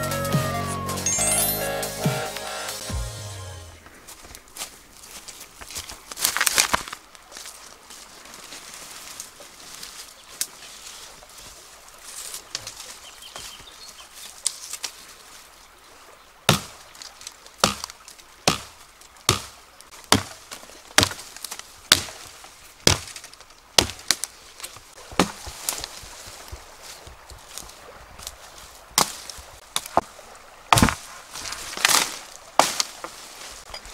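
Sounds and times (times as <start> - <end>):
branches and leaves rustling: 3.6 - 33.9
blade chopping tree branch: 16.5 - 16.8, 17.6 - 24.3, 25.0 - 26.6, 29.0 - 30.0, 30.7 - 33.2.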